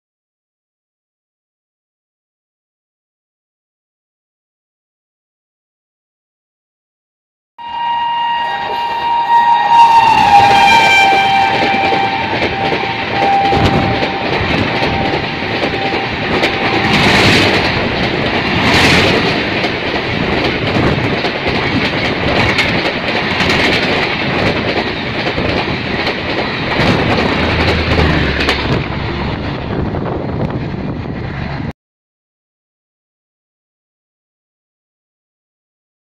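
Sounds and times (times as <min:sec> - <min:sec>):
train horn: 0:07.6 - 0:17.6
train coaches rumbling past: 0:07.6 - 0:31.7
wheels clattering over rails: 0:10.2 - 0:31.7.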